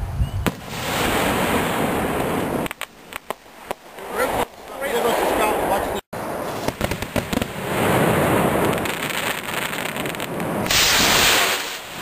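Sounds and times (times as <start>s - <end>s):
firework clicks and crackling sparks: 0.5s - 4.8s, 6.5s - 12.0s
firework rocket rushing hiss: 6.2s - 12.0s.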